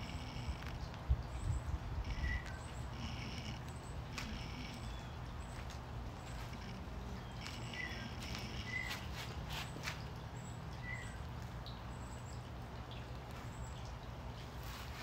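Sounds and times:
birds chirping: 0:00.0 - 0:15.0
shoe scuffs on stone paving: 0:07.5 - 0:10.0.

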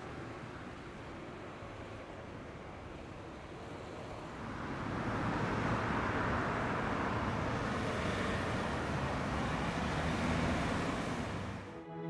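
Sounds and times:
cars approaching on road: 0:00.0 - 0:12.0.

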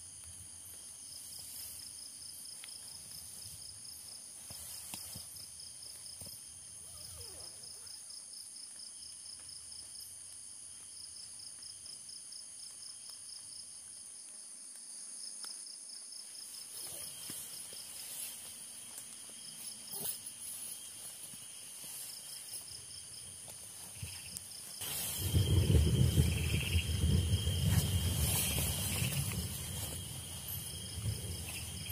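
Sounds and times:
insects chirping: 0:00.0 - 0:31.9
fast pulsing insect trill: 0:16.5 - 0:31.9.

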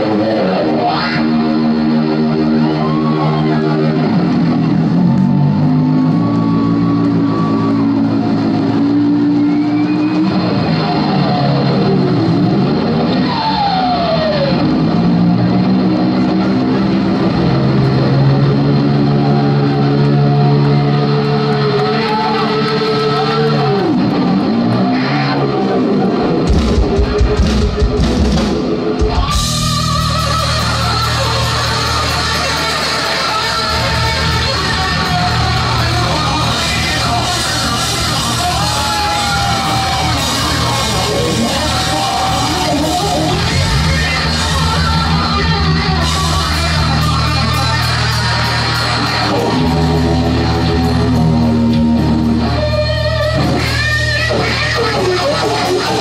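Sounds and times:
bass guitar: 0:00.0 - 0:56.0
distorted electric guitar: 0:00.0 - 0:56.0.

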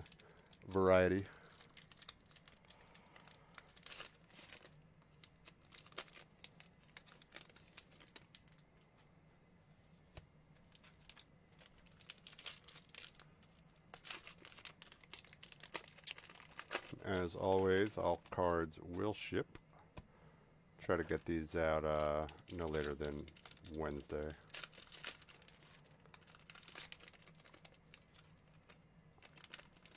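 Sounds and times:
foil wrappers tearing and crinkling: 0:00.0 - 0:08.6, 0:10.7 - 0:18.4, 0:21.0 - 0:29.9.

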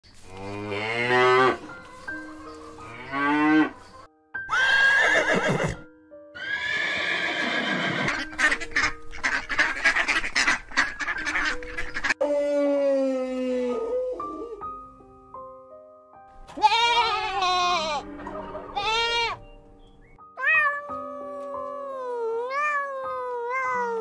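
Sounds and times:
faint background music: 0:00.1 - 0:24.0
horse whinnying: 0:04.5 - 0:08.3
ducks quacking: 0:08.1 - 0:12.2.

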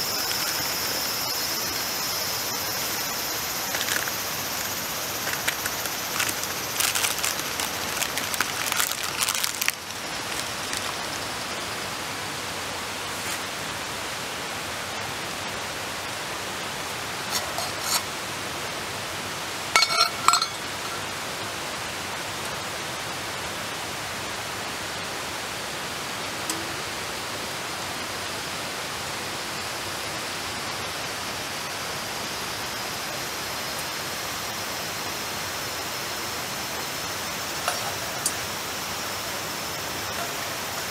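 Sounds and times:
steady rushing hiss: 0:00.0 - 0:40.9
knife and spoon scraping metal bowl: 0:17.3 - 0:18.1, 0:19.8 - 0:20.6
tin lid clinking: 0:19.8 - 0:20.8.

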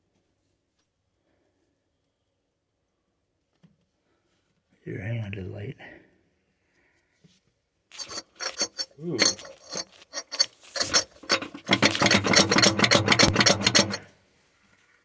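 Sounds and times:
rough scraping and rubbing: 0:07.9 - 0:14.1.

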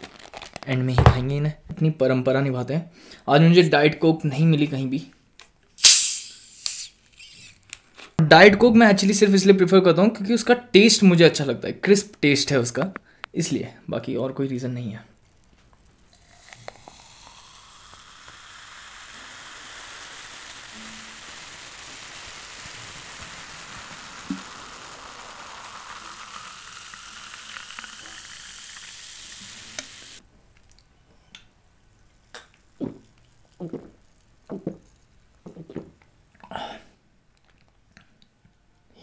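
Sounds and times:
soda pouring and fizzing: 0:15.3 - 0:30.2, 0:32.1 - 0:36.0.

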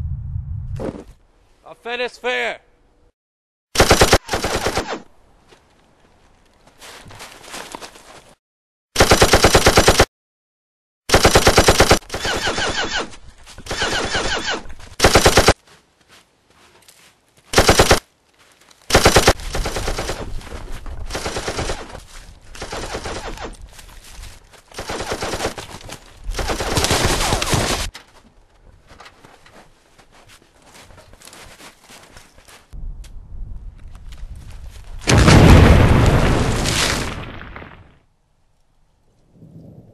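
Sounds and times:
automatic gunfire bursts: 0:03.8 - 0:05.0, 0:09.0 - 0:10.1, 0:11.1 - 0:13.1, 0:13.7 - 0:15.6, 0:17.6 - 0:18.0, 0:18.9 - 0:20.3, 0:21.1 - 0:21.9, 0:22.6 - 0:23.5, 0:24.8 - 0:25.6, 0:26.4 - 0:27.4.

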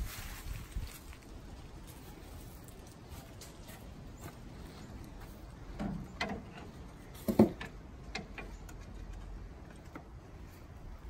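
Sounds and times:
metallic clicks and knocks: 0:05.7 - 0:10.1.

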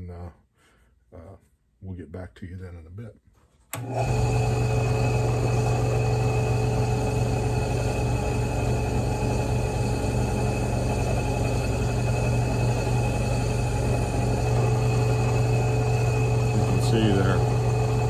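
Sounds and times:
drill press motor running: 0:03.8 - 0:18.0.

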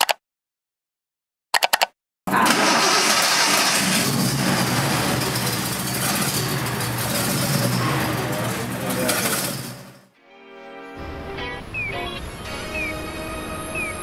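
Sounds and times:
car engine running: 0:02.3 - 0:10.1.

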